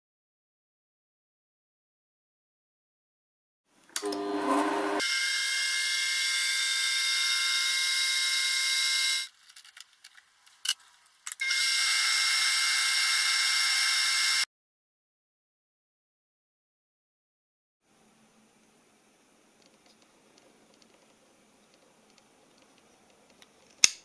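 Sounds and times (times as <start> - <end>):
metal lathe whining: 4.0 - 5.0.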